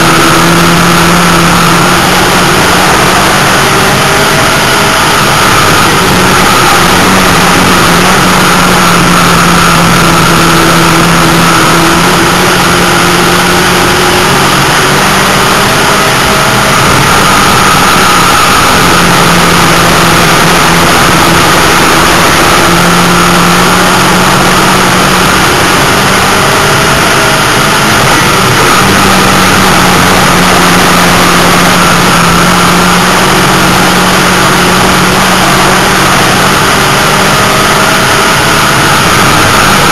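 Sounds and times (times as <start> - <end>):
race car engine: 0.0 - 39.9.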